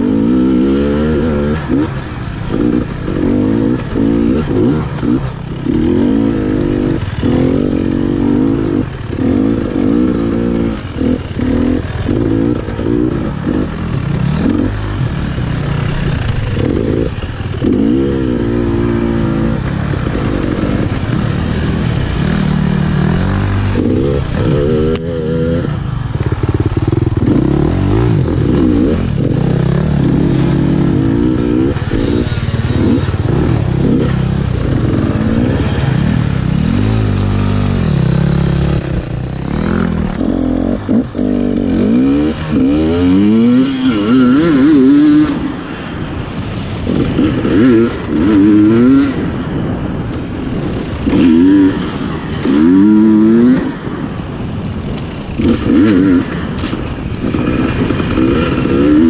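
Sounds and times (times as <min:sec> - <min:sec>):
motorbike engine revving: 0:00.0 - 0:46.1, 0:55.2 - 0:59.0
steady rushing noise: 0:00.0 - 0:59.0.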